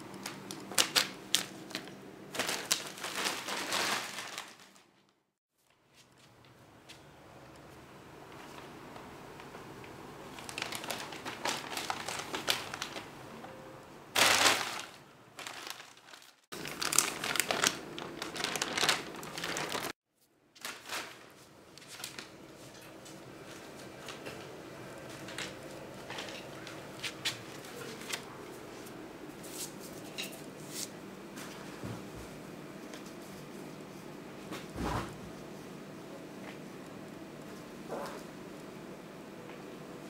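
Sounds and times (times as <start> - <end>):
plastic bag crinkling: 0.1 - 5.1, 10.3 - 13.2, 14.2 - 20.0, 20.6 - 22.4.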